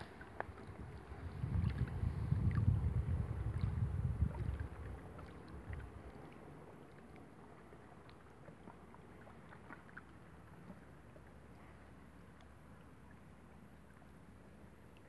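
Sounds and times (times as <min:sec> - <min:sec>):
wind buffeting microphone: 0:00.0 - 0:06.1.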